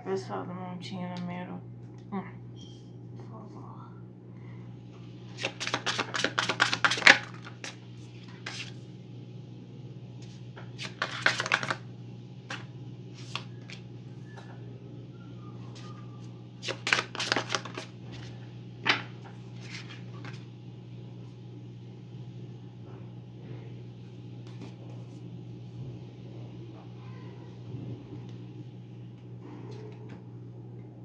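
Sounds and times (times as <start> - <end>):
cards shuffling with slapping clicks: 5.3 - 8.7, 10.6 - 11.8, 12.5 - 13.8, 16.6 - 17.9
card taps: 10.6 - 11.8.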